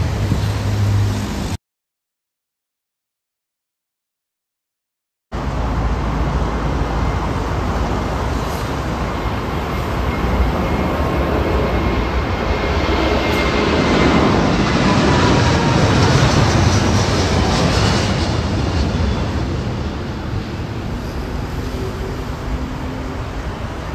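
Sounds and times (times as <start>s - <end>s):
jet engines at takeoff thrust: 0.0s - 1.6s, 5.4s - 23.9s.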